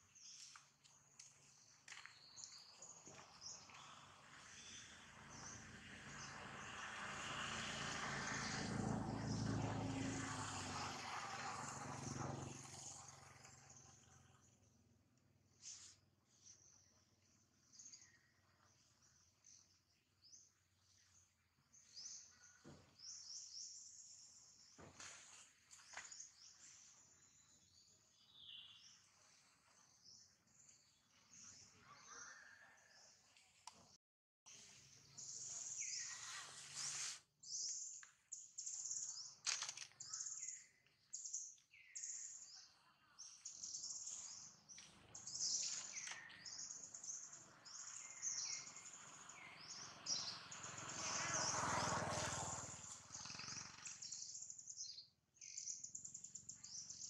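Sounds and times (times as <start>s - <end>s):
engine drone passing by: 3.5s - 14.8s, 43.5s - 54.5s.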